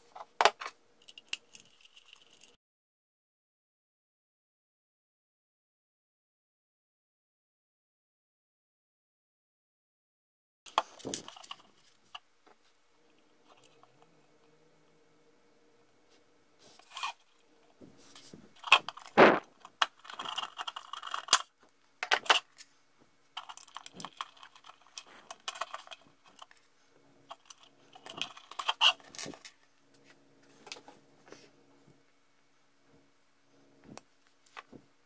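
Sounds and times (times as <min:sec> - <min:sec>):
small parts clicking and tapping: 0:00.1 - 0:02.6, 0:18.1 - 0:22.7, 0:23.3 - 0:26.7, 0:27.3 - 0:30.0.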